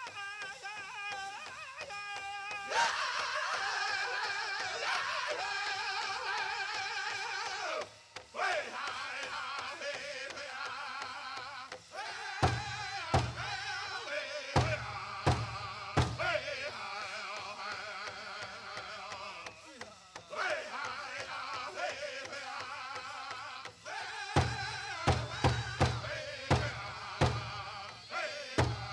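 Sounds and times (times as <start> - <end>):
loud accented drumbeats: 0.0 - 28.9
men singing high voices: 0.0 - 28.9
big drum beating: 12.4 - 14.0, 14.6 - 16.6, 24.3 - 28.9.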